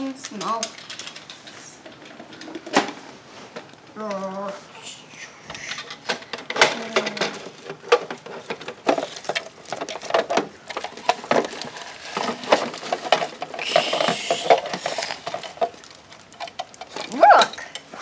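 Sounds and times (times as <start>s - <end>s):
plastic toy parts clicking: 0.0s - 2.5s
shredded paper rustling: 7.4s - 16.3s.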